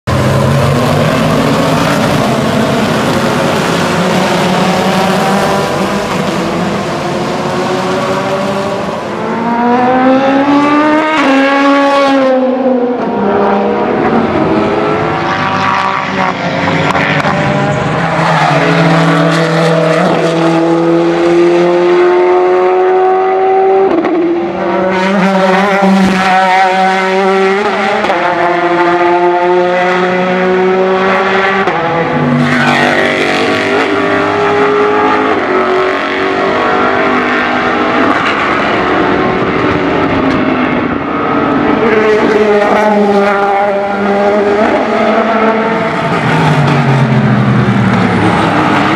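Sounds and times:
race car engines passing: 0.1 - 48.9.

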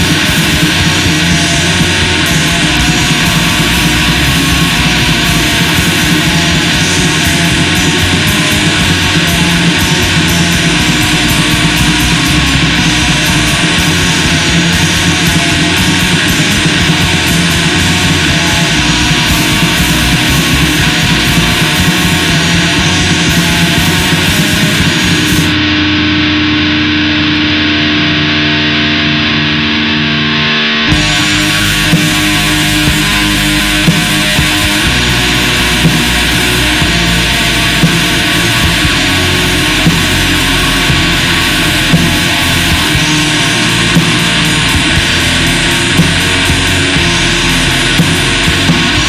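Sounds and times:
drums with cymbal strokes: 0.0 - 25.7, 30.9 - 49.0
distorted electric guitars: 0.0 - 49.0.

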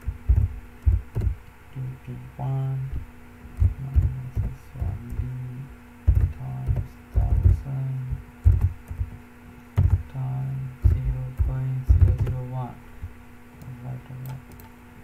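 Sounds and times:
low hum: 0.0 - 15.0
keyboard keystrokes: 0.3 - 1.4, 3.5 - 5.3, 6.1 - 7.6, 8.4 - 9.2, 9.8 - 10.1, 10.8 - 12.4.

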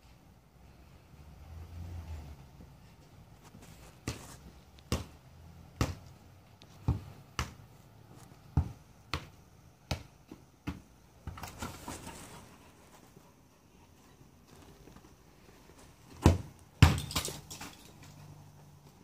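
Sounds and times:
soccer ball kicked off boots: 3.4 - 12.1, 15.9 - 18.0.

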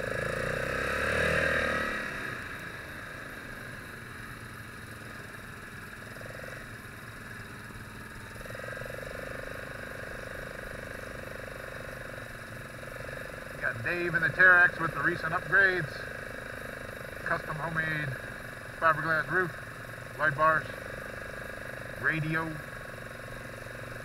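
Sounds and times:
atv engine running: 0.0 - 24.0
tyres on gravel road: 0.0 - 24.0.

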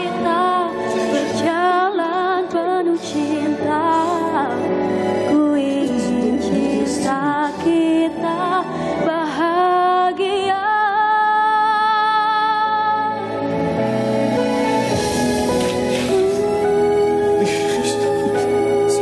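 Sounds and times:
woman singing slow song: 0.0 - 13.3
instrumental backing: 12.7 - 19.0.

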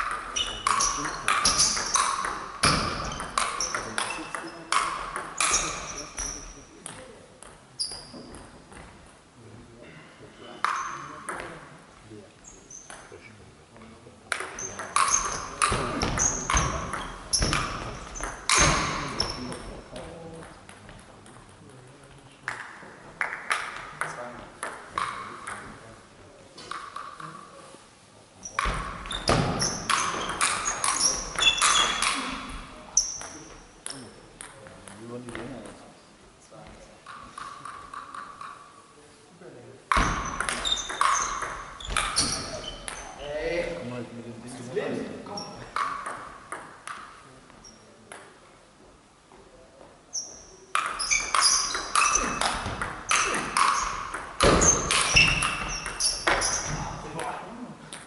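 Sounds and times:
shoes squeaking: 0.0 - 7.1, 7.8 - 9.0, 14.4 - 19.7, 28.4 - 34.1, 39.9 - 43.4, 50.1 - 57.4.

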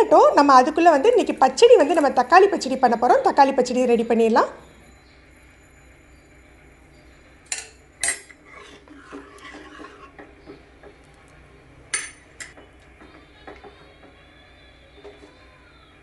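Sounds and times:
metal ladle clinking and scraping: 7.5 - 10.2.

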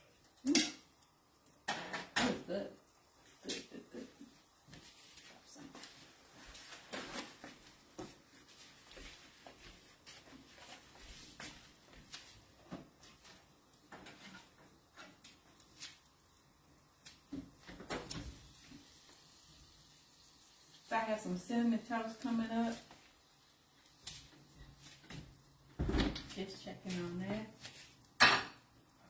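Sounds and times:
utensil in frying skillet: 0.0 - 29.0
kitchen clicks and knocks: 1.6 - 2.5, 28.2 - 28.6.

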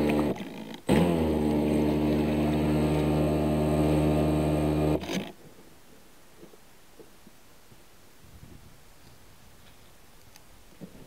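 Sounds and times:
electric motor of toy boat running: 0.0 - 5.3.

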